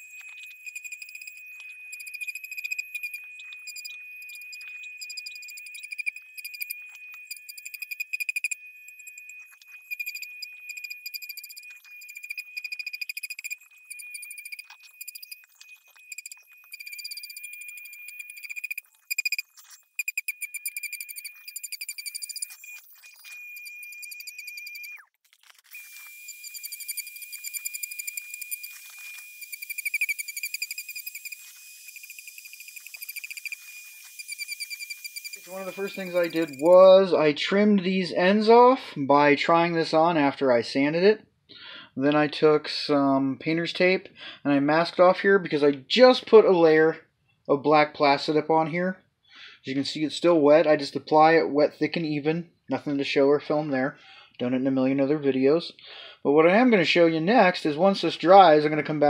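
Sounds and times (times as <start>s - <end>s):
rotary tool whine: 0.0s - 36.9s
rasping chatter sanding foam: 27.4s - 36.8s.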